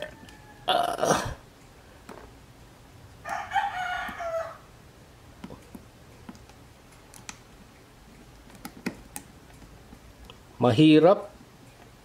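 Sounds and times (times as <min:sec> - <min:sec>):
rooster crowing: 0:00.0 - 0:00.9, 0:03.2 - 0:04.7.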